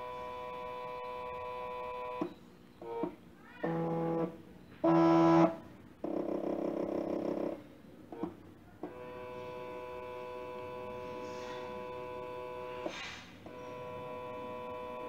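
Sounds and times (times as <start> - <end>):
stepper motor whining: 0.0 - 7.6.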